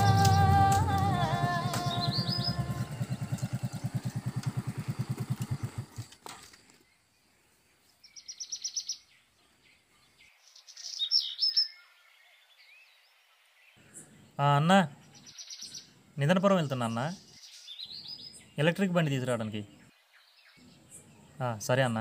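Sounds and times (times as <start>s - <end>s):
motorcycle engine running: 0.0s - 6.3s
birds chirping: 0.0s - 22.0s.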